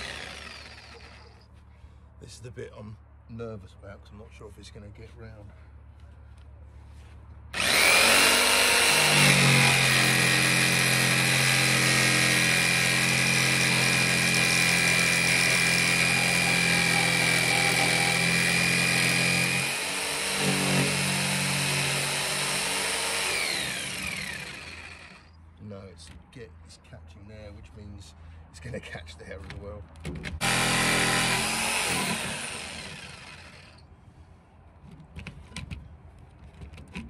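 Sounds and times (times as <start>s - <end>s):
jigsaw cutting steel: 0.0s - 1.4s, 7.6s - 25.3s, 30.4s - 33.8s.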